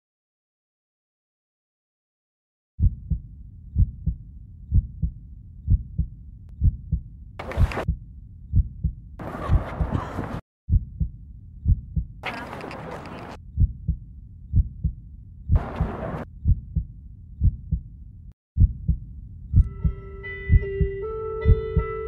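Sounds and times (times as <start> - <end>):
heartbeat thumping: 2.8 - 12.2, 13.6 - 17.9, 18.6 - 22.0.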